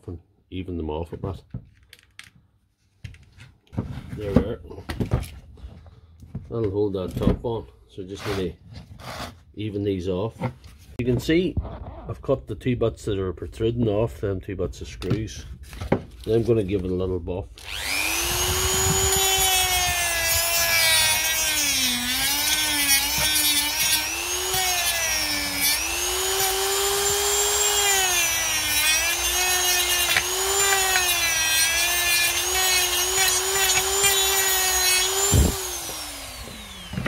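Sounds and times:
rotary tool sanding whine: 17.6s - 37.0s.

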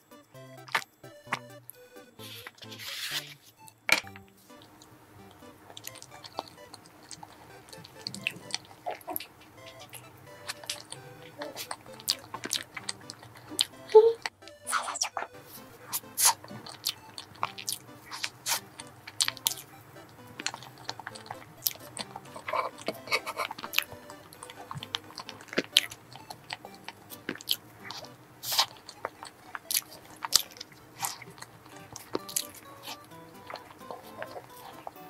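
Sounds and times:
chewing with wet mouth clicks: 5.7s - 15.3s, 20.4s - 35.0s.

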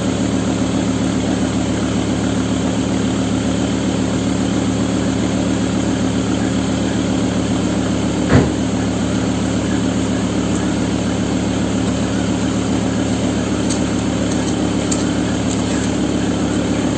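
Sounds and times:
car engine idling: 0.0s - 16.9s
short sharp bang: 8.3s - 8.7s.

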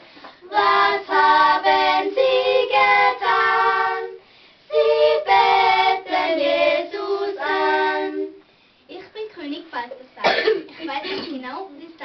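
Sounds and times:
children singing a carol: 0.4s - 8.4s.

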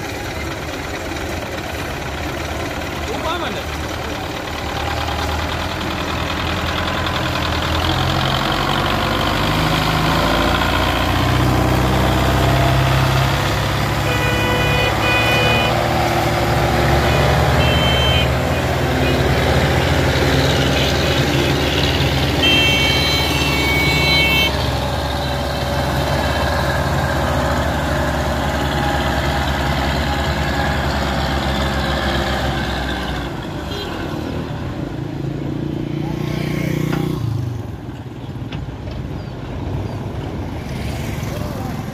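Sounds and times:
tractor diesel engine under load: 0.0s - 41.9s
horn blasts: 13.9s - 16.2s, 17.0s - 19.4s, 20.7s - 24.7s.

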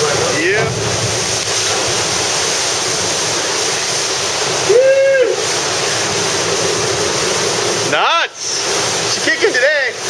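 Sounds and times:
water surging into sea cave: 0.0s - 10.0s
person whooping: 4.6s - 5.6s.

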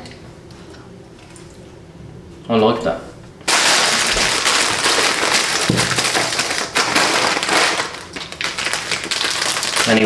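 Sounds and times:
candy packaging crinkling: 3.5s - 10.0s.

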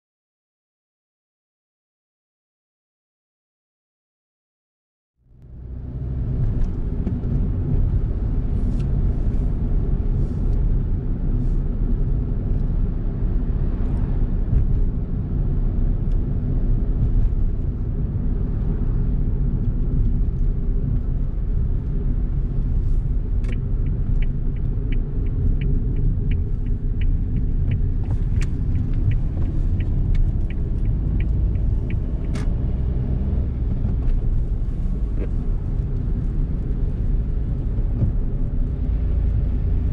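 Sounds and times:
engine and tyre rumble: 5.2s - 39.9s
light regular ticking: 23.2s - 32.9s.

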